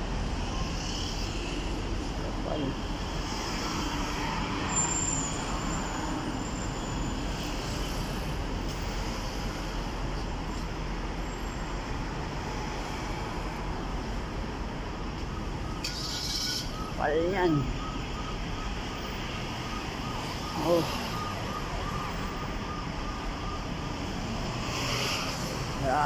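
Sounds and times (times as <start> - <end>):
cars driving past: 24.0 - 26.0.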